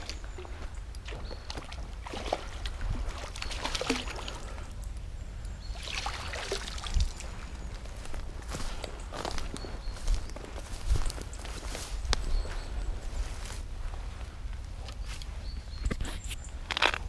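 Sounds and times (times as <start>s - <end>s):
water splashing and sloshing: 0.0s - 5.0s, 5.6s - 12.0s.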